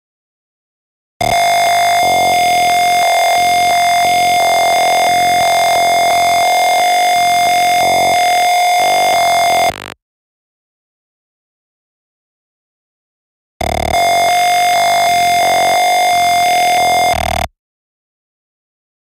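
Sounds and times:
steady buzzer tone: 1.2 - 10.0, 13.6 - 17.5.

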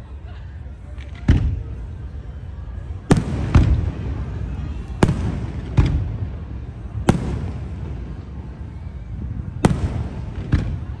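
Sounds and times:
fireworks bangs: 3.0 - 11.0.

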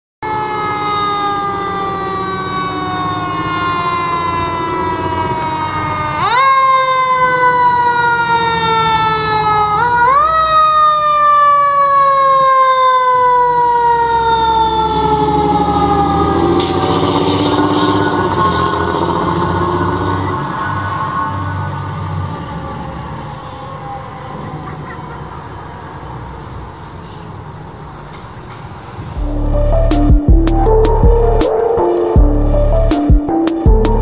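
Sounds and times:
mechanical siren wailing: 0.2 - 26.1
truck engine rumbling: 0.3 - 10.6, 13.6 - 34.0.

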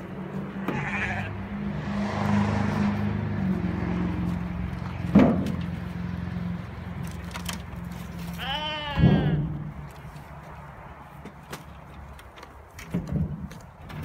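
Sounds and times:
goat bleating: 0.5 - 1.5, 8.2 - 9.7.

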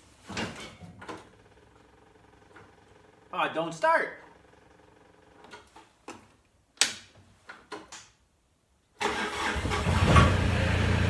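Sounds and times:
diesel engine cranking and running: 9.0 - 11.0.

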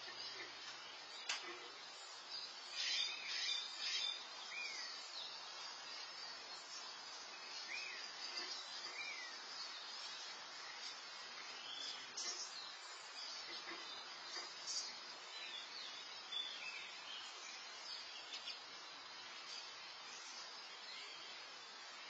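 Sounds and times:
small birds chirping: 0.0 - 22.0
steady high hiss: 0.0 - 22.0.

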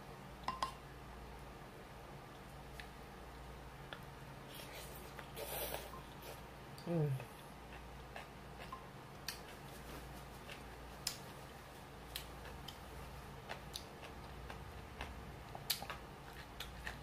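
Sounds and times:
low steady hum: 0.0 - 17.0
utensil tapping glass bowl: 0.5 - 0.8
chewing clicks and smacks: 13.4 - 17.0.

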